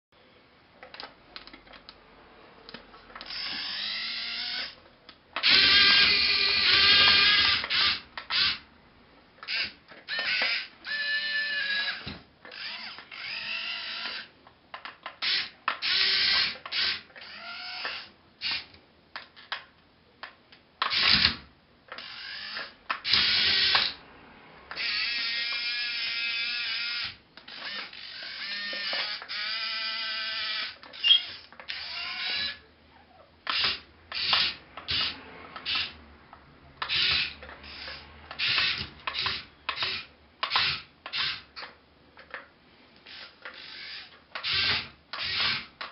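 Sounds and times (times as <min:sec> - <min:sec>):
small electric motors whining: 0:03.2 - 0:04.8, 0:05.4 - 0:08.6, 0:09.4 - 0:14.4, 0:15.2 - 0:18.7, 0:20.9 - 0:24.0, 0:24.7 - 0:32.6, 0:33.5 - 0:36.0, 0:36.8 - 0:41.6, 0:43.0 - 0:45.9.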